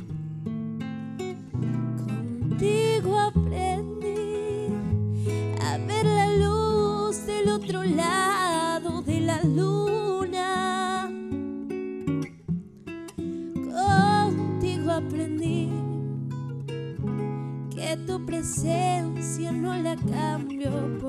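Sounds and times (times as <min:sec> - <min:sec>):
fingerpicked classical guitar: 0:00.0 - 0:21.0
woman singing a slow ballad: 0:02.1 - 0:11.4, 0:13.6 - 0:16.3, 0:17.5 - 0:21.0.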